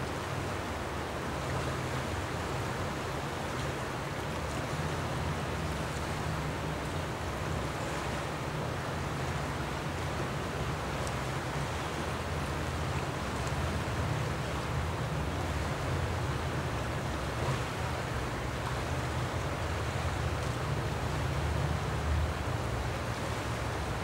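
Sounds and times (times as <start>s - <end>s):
river water rushing: 0.0s - 24.0s.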